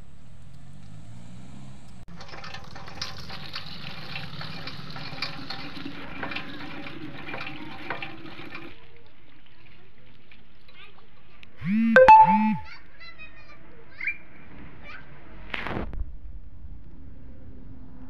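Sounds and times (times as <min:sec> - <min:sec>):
water splashing into a pot: 0:02.1 - 0:11.1.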